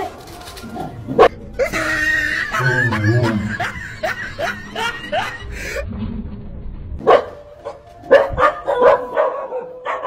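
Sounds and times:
dogs barking: 0:07.0 - 0:10.0.

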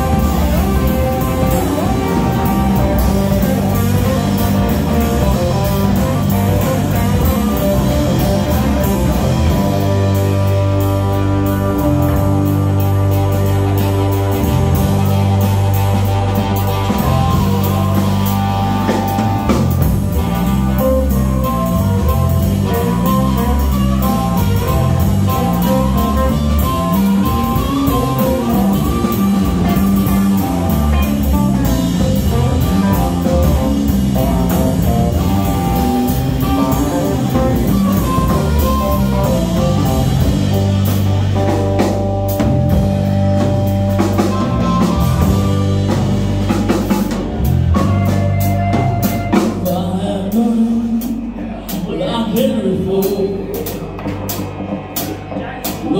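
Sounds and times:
drum kit steady beat: 0:00.0 - 0:55.9
electric bass riffing: 0:00.0 - 0:55.9
electric guitar: 0:00.0 - 0:55.9
harmonica through microphone: 0:00.0 - 0:55.9.

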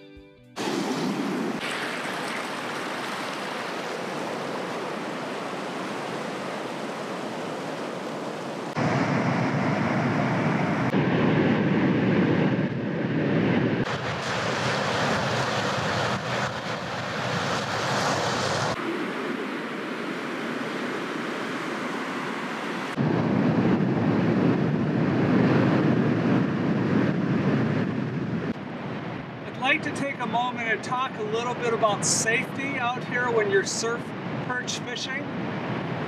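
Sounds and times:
ocean surf breaking: 0:00.6 - 0:12.2, 0:13.6 - 0:36.0
wind on microphone: 0:00.6 - 0:36.0.

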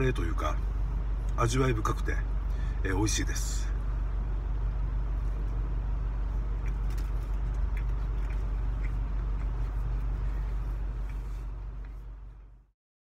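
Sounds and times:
car cabin hum: 0:00.0 - 0:12.6
mouth clicks from chewing: 0:06.5 - 0:11.9.

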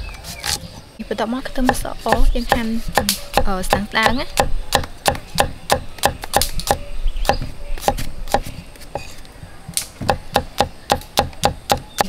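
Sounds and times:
knife chopping on wooden board: 0:01.6 - 0:09.1, 0:10.0 - 0:12.0.

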